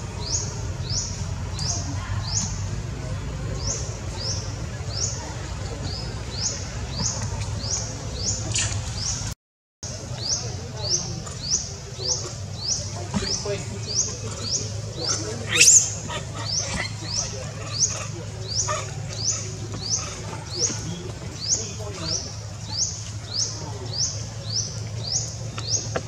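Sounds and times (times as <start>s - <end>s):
high chirp: 15.5s - 16.0s.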